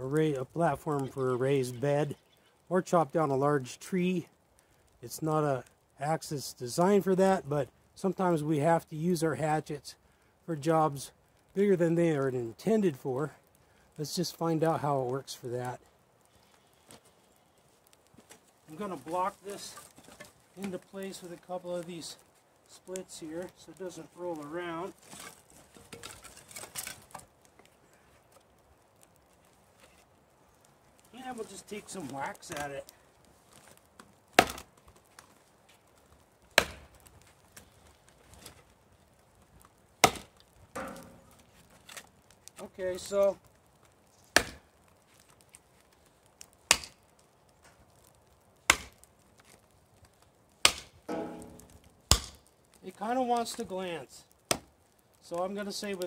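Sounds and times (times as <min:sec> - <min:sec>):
firewood knocking and scraping: 0:10.6 - 0:56.0
hatchet chopping into log: 0:34.4 - 0:34.7, 0:36.6 - 0:36.9, 0:40.0 - 0:41.1, 0:44.4 - 0:44.6, 0:46.7 - 0:47.0, 0:48.7 - 0:49.0, 0:50.6 - 0:52.4.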